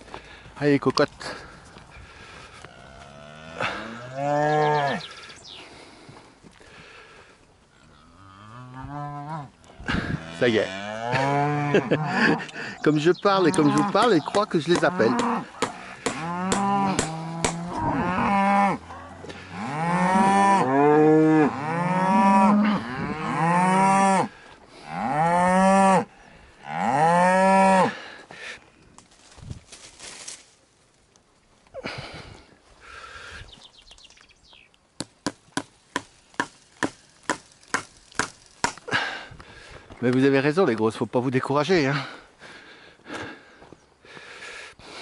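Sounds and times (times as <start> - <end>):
cows mooing: 2.6 - 5.2, 7.7 - 12.7, 13.4 - 28.0.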